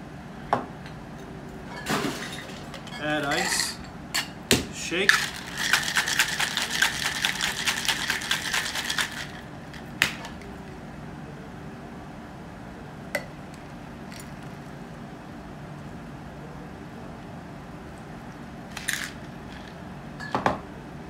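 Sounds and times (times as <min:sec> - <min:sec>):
ice rattling in cocktail shaker: 0:05.0 - 0:10.4, 0:18.7 - 0:19.8.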